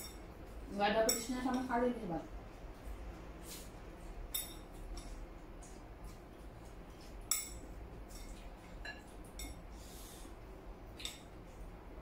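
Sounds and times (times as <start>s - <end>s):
chopsticks clinking on porcelain bowls: 1.0s - 1.8s, 4.3s - 5.2s, 7.3s - 9.6s.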